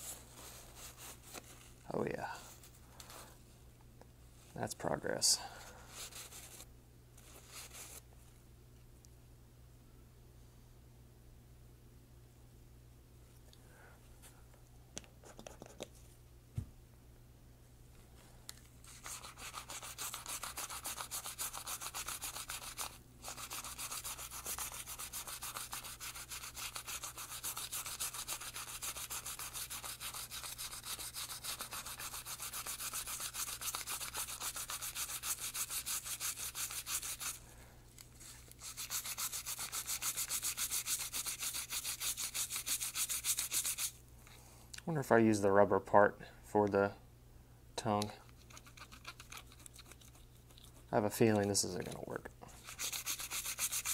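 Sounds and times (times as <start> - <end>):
toothbrush scrubbing metal: 18.9 - 37.4, 38.4 - 44.0, 48.2 - 52.0, 52.6 - 53.9.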